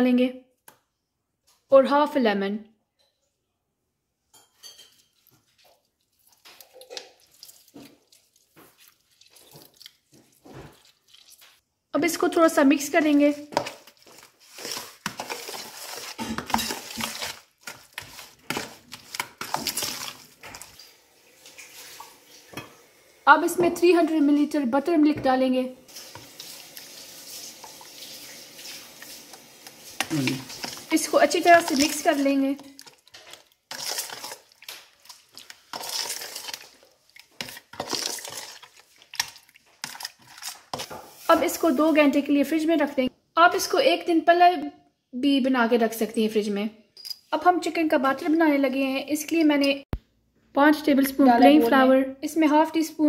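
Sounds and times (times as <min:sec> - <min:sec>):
wet hand mixing noises: 0:04.9 - 0:22.6, 0:25.9 - 0:42.9.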